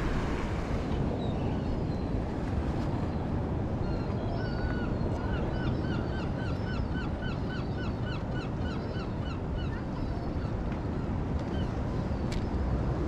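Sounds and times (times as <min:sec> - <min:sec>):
surf: 0:00.0 - 0:05.3
wind: 0:00.0 - 0:13.0.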